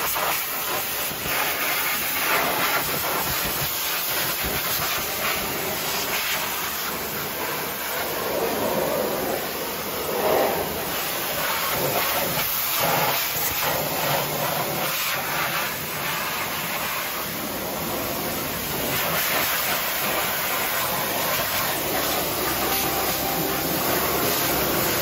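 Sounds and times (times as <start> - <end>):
pressure washer spray hissing: 17.9 - 25.0.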